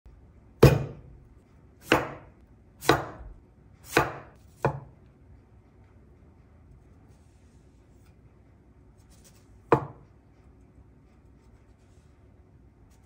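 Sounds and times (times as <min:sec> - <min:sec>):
knife striking cutting board: 0:00.6 - 0:01.1, 0:01.8 - 0:04.9, 0:09.7 - 0:10.0.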